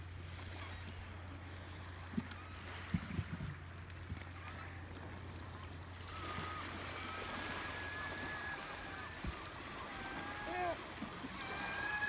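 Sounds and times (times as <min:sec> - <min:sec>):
surf washing on beach: 0:00.0 - 0:12.0
gulls calling: 0:05.4 - 0:12.0.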